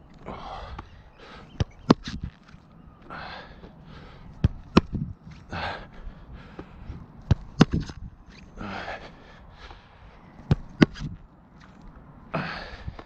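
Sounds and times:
person breathing hard: 0:00.2 - 0:01.6, 0:03.0 - 0:04.4, 0:05.3 - 0:07.1, 0:08.5 - 0:10.3, 0:12.3 - 0:13.0
ball thudding into gloves: 0:04.4 - 0:05.1, 0:07.3 - 0:08.0, 0:10.5 - 0:11.2.

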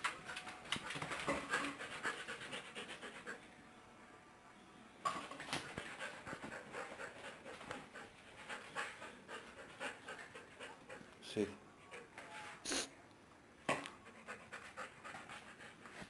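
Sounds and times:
dog panting rapidly: 0:00.3 - 0:03.4, 0:05.6 - 0:11.1, 0:14.0 - 0:16.0.

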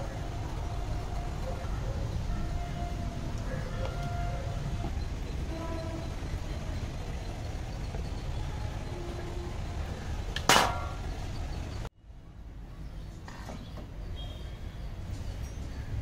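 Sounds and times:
steady low rumble: 0:00.0 - 0:12.7.

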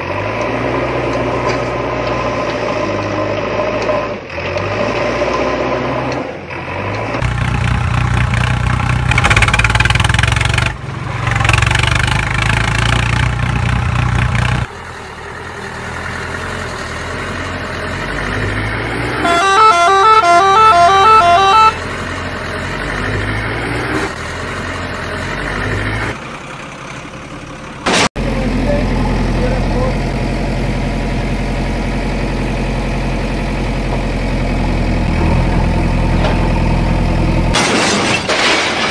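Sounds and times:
truck engine running: 0:00.0 - 0:37.9
horn honking: 0:19.1 - 0:21.9
two-note horn pattern: 0:19.2 - 0:21.8.

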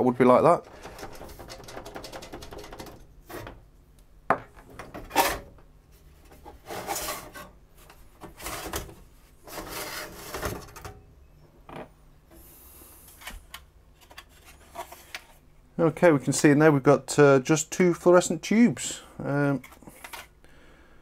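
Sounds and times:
metal scraping against housing: 0:06.3 - 0:07.6.

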